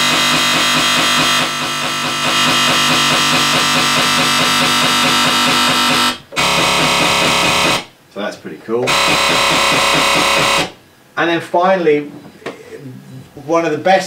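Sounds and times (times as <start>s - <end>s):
distorted wobble bass synth: 0.0s - 7.9s, 8.9s - 10.8s.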